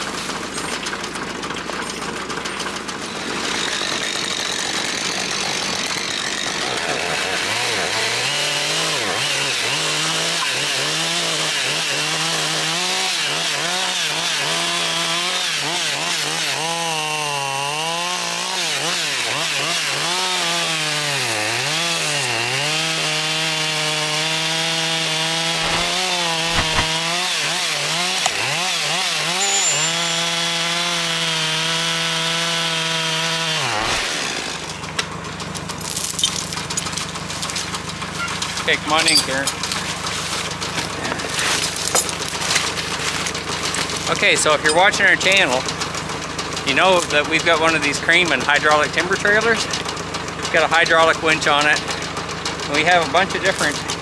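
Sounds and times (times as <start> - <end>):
chainsaw cutting wood: 0.0 - 54.0
branches being handled: 25.2 - 30.8, 33.7 - 44.9.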